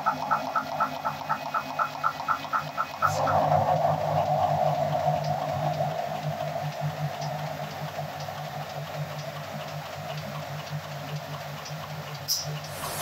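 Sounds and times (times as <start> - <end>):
light ticking: 0.0 - 13.0
printing press hum: 0.0 - 13.0.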